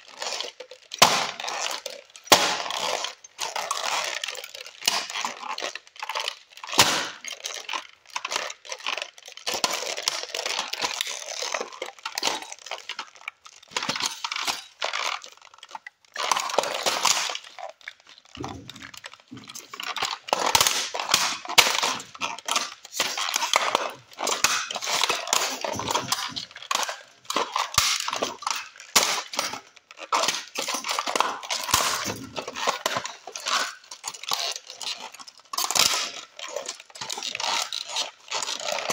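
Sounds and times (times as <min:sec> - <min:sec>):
model car crunching and cracking: 0:00.0 - 0:38.9
pieces falling on concrete: 0:18.4 - 0:29.6, 0:30.2 - 0:33.8.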